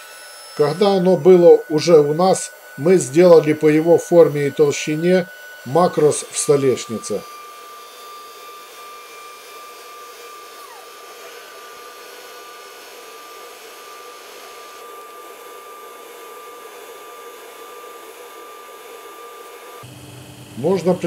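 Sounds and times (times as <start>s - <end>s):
machinery motor hum: 19.8s - 21.0s.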